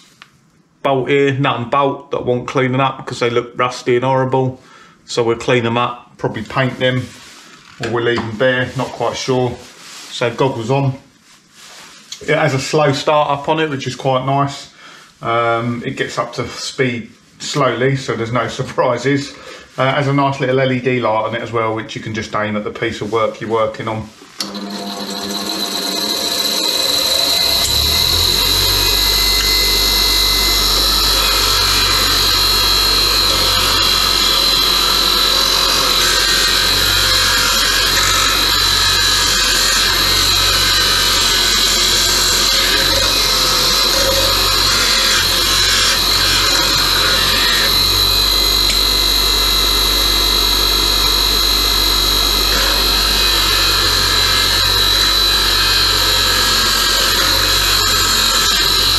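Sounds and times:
bench grinder whining: 24.4 - 58.9
wire wheel scraping rust: 24.5 - 58.9.

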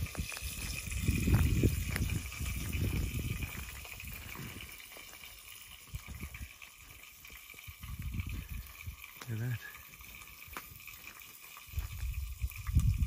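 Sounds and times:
wind gusting on microphone: 0.0 - 4.8, 5.8 - 6.6, 7.6 - 9.2, 11.6 - 13.0.

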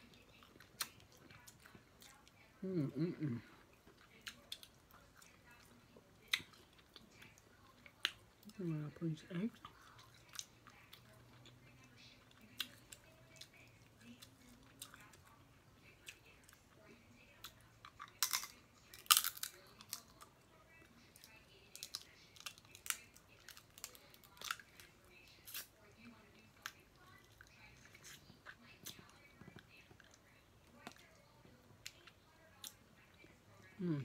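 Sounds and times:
chewing: 0.0 - 8.6, 9.3 - 34.0
crab shells cracking: 18.0 - 20.2.

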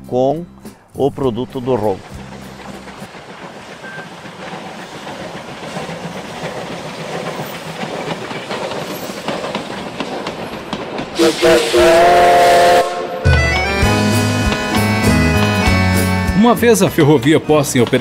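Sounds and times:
steam train passing: 0.6 - 18.0
wheels clicking over rail joints: 1.0 - 11.2, 13.4 - 18.0
steam whistle blowing: 11.2 - 15.7.

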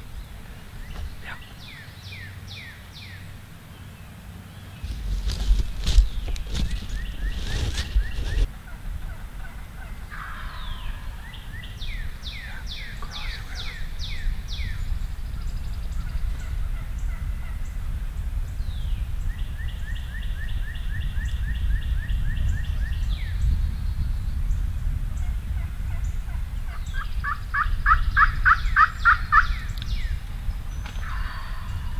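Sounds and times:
steady low rumble: 0.0 - 31.9
turkey yelping: 26.7 - 29.6.

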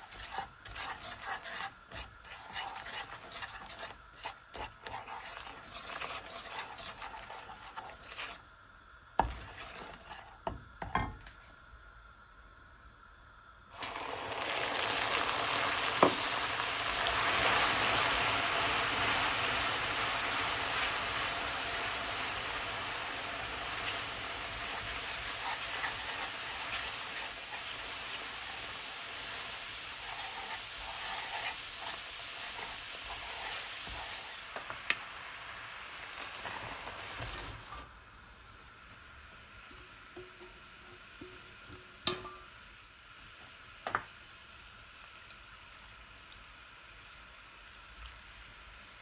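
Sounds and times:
syrup boiling: 0.0 - 10.6, 13.0 - 38.0
water sizzling on hot sugar: 0.0 - 11.8, 13.0 - 49.0.

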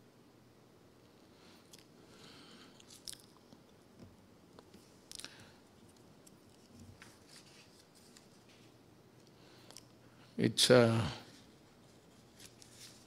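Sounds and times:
papers rustling and clicking: 11.9 - 13.0.

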